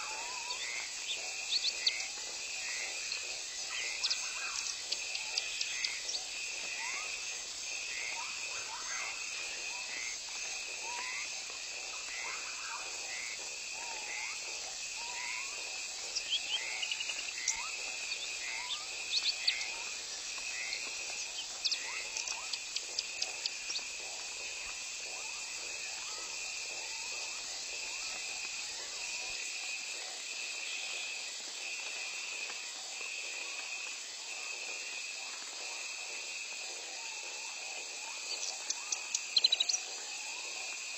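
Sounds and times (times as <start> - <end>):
insects buzzing: 0.0 - 40.9
pulsing insect call: 0.0 - 40.9
bird chirps: 38.3 - 39.8.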